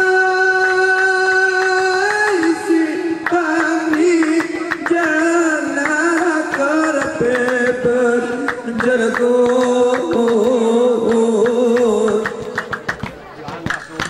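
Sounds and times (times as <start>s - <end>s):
person singing long wavering notes: 0.0s - 12.6s
hand-struck percussion: 1.0s - 14.0s.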